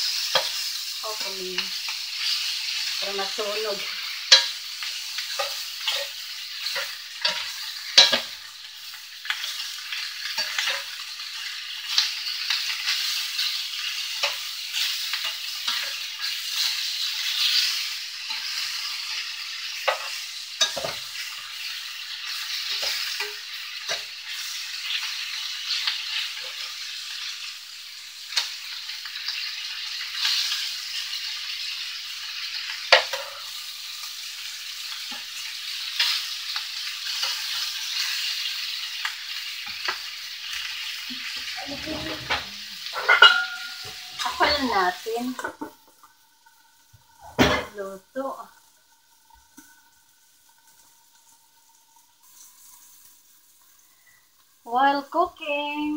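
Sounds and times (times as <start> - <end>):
spatula scraping a pan: 0.0 - 26.7, 41.1 - 45.8
meat sizzling in a skillet: 0.0 - 55.9.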